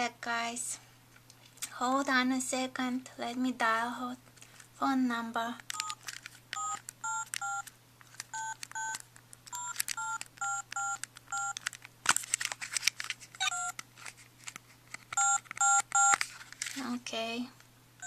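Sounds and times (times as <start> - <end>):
key press clicks: 5.7 - 11.8, 15.1 - 16.2
toy phone two-tone beeps: 6.6 - 7.7, 8.4 - 9.0, 9.6 - 11.6, 13.4 - 13.8, 15.2 - 16.2.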